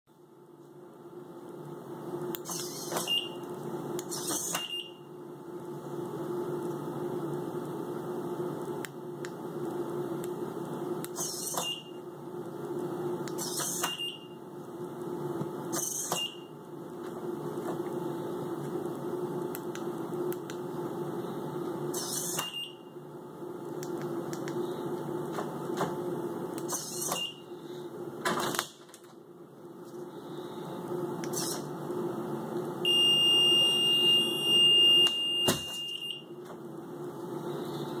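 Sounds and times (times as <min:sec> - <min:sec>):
steady high beep: 0:32.8 - 0:36.3.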